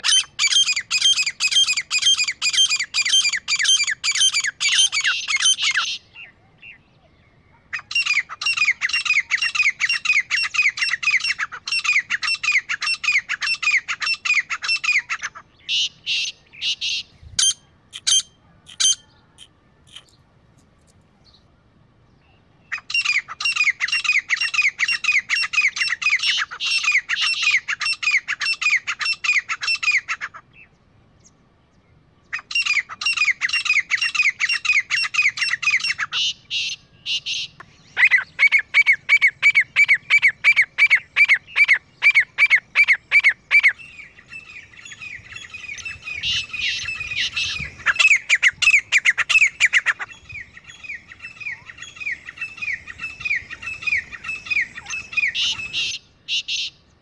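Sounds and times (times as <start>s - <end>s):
francolins calling harshly: 0.0s - 6.8s, 7.7s - 20.2s, 32.3s - 56.9s.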